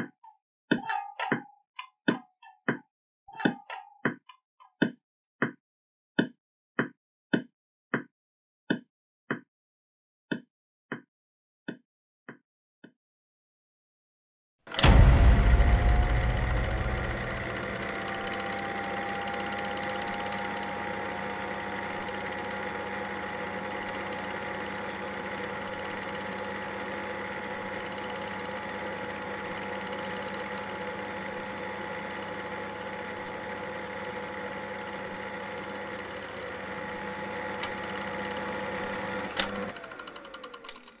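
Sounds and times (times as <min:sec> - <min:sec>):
sharp click: 0:14.7 - 0:20.1
small mechanism whirring: 0:14.7 - 0:41.0.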